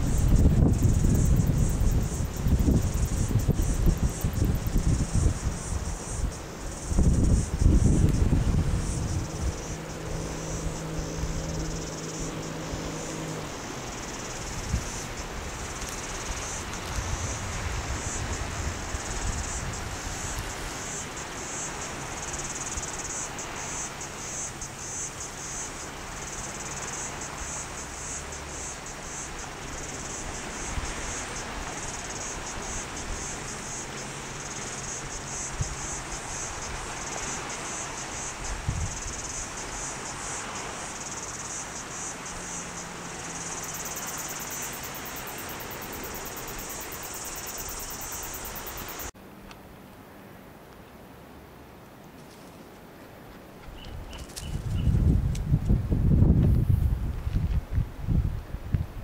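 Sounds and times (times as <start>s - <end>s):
wind noise on microphone: 0.0s - 23.7s, 28.2s - 41.1s, 53.6s - 59.0s
cicadas shrilling: 0.0s - 49.2s, 53.5s - 58.4s.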